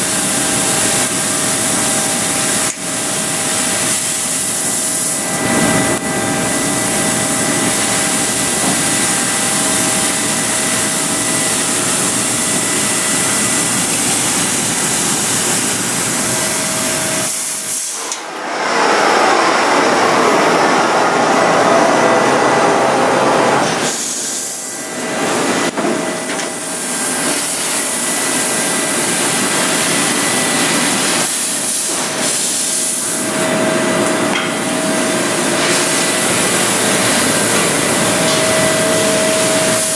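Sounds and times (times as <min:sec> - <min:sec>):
laser cutter hissing: 0:00.0 - 0:39.9
dense rushing noise: 0:18.3 - 0:23.7
faint steady whine: 0:33.0 - 0:39.9.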